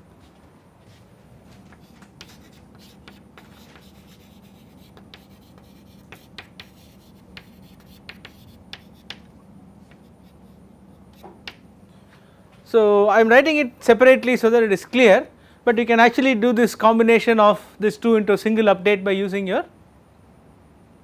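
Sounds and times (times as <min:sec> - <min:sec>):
low steady hum: 0:00.0 - 0:21.0
chalk scratching on chalkboard: 0:01.8 - 0:09.3, 0:09.9 - 0:11.6
chalk tapping on board: 0:01.8 - 0:11.6.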